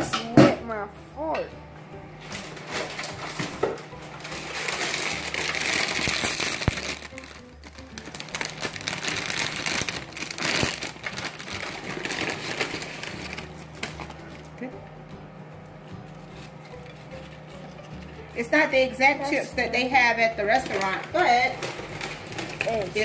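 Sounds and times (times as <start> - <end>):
plastic chip bag crinkling: 2.4 - 14.6, 20.4 - 23.0.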